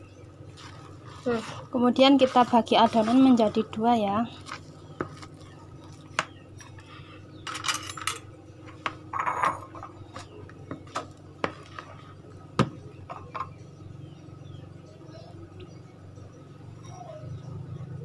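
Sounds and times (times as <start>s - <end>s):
low steady hum: 0.0s - 18.0s
spatula scraping a mixing bowl: 0.5s - 6.0s, 10.1s - 12.2s
bowls clinking: 7.4s - 10.3s.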